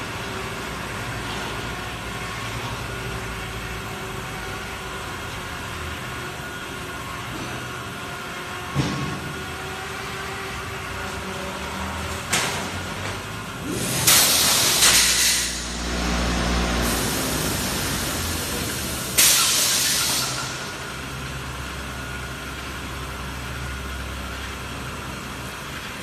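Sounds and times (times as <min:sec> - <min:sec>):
pneumatic air hissing: 0:13.6 - 0:15.9, 0:16.6 - 0:20.9.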